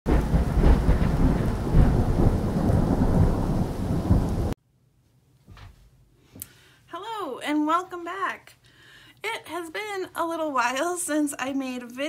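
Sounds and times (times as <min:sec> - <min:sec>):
steady rain: 0:00.1 - 0:04.6
thunder rumbling: 0:00.1 - 0:04.6.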